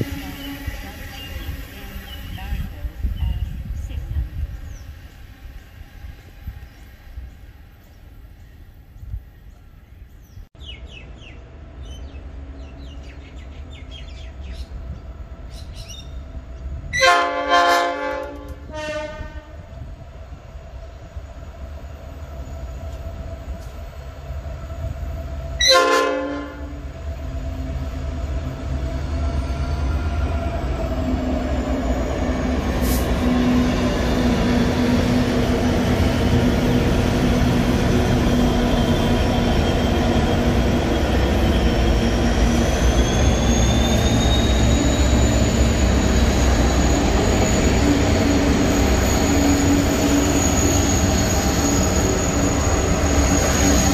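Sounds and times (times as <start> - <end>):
locomotive engines passing: 0.0 - 18.9, 19.6 - 53.9
train multi-tone horn: 16.9 - 19.8, 25.6 - 26.9.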